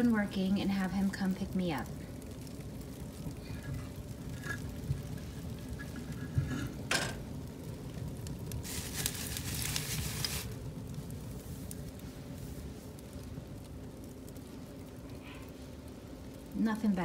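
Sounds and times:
fire crackling and hissing: 0.0 - 17.0
log laid on fire rustling: 3.0 - 12.0.

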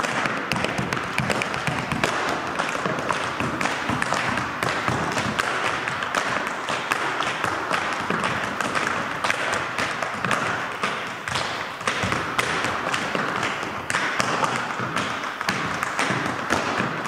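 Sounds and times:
sneakers tapping wooden floor: 0.0 - 17.0.

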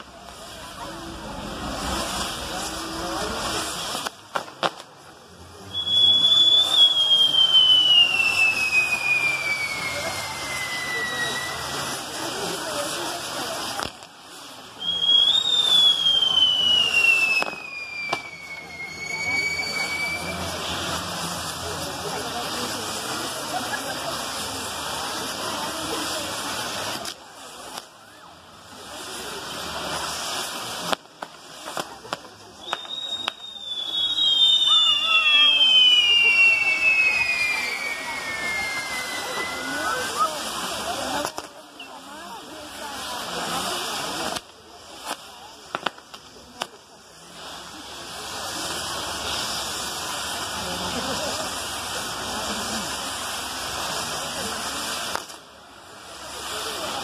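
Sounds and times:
rushing of burning fireworks: 0.0 - 57.0
whistling firework: 0.0 - 57.0
sharp cracks: 1.7 - 5.0, 44.2 - 46.8, 55.1 - 55.4
high steady whistle: 5.4 - 12.3, 14.8 - 22.3, 32.4 - 41.2.

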